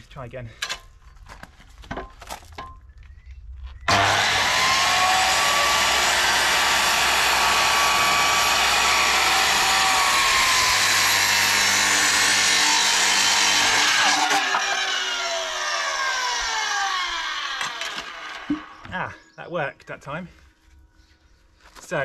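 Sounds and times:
circular saw cutting timber: 3.9 - 18.9.

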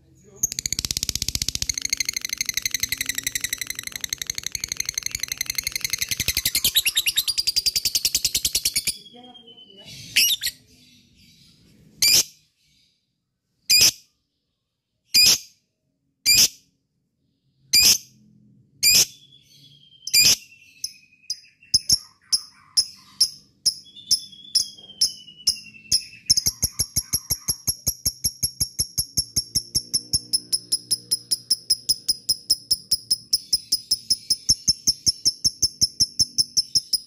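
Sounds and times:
lovebird chattering trill: 0.4 - 10.6, 20.1 - 37.0
lovebird shrill calls: 0.5 - 9.0, 21.4 - 28.6.

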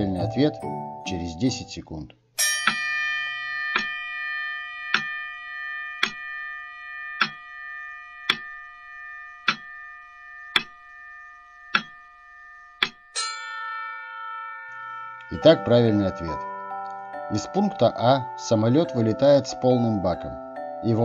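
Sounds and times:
chime: 2.4 - 21.0
steady held chord: 2.4 - 21.0
clock-like ticking: 3.7 - 4.1, 4.8 - 13.2.

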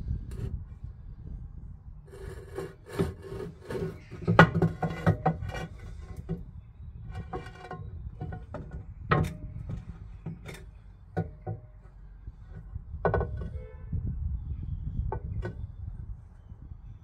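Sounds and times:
steady low rumble: 0.0 - 2.6
metallic knocks and clunks: 2.1 - 13.8, 14.9 - 16.0.

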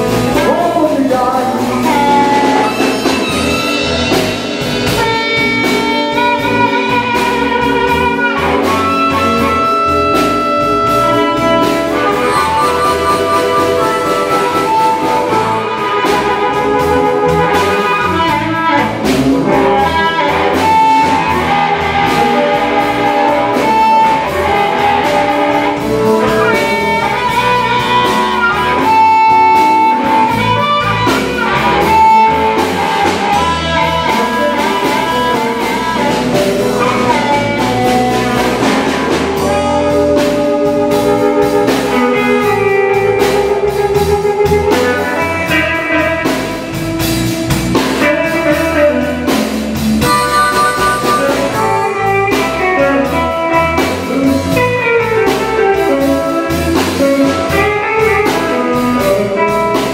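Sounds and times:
drums: 0.0 - 59.9
electric guitar: 0.0 - 59.9
amplified harmonica wailing: 9.6 - 16.3, 50.0 - 53.4.

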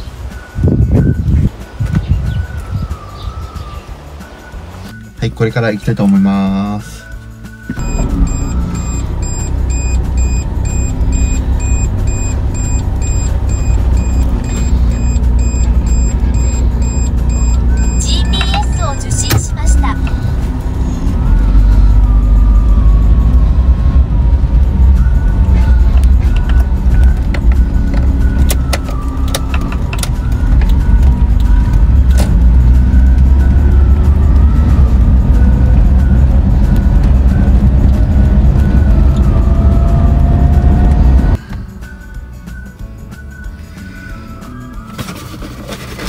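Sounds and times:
car engine rumble: 0.0 - 46.0
regular electronic beep: 4.9 - 20.2.

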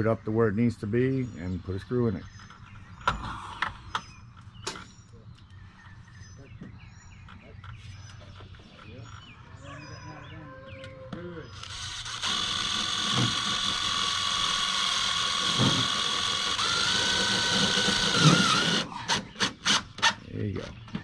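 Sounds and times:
cordless drill driving a screw: 11.6 - 20.2.

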